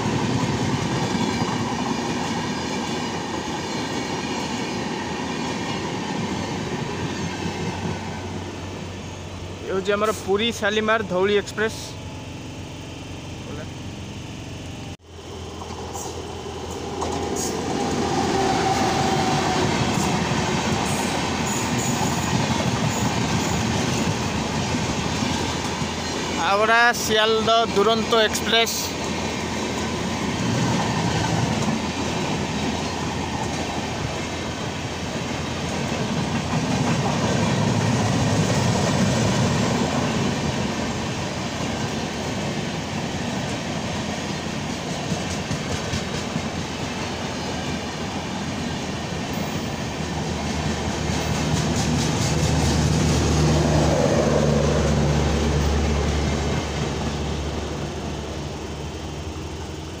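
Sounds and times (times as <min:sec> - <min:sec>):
train wheels clattering over rail joints: 0:41.4 - 0:53.6.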